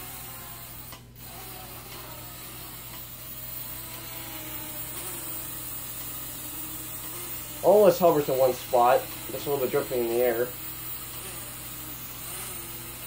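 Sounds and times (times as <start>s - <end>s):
quadcopter propellers buzzing: 0.0s - 13.0s.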